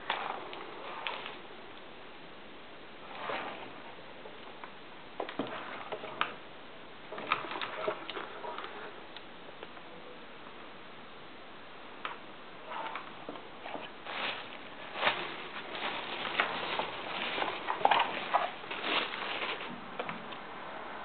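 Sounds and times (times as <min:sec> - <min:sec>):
bubble wrap rustling and crinkling: 0:00.0 - 0:01.5, 0:12.7 - 0:20.0.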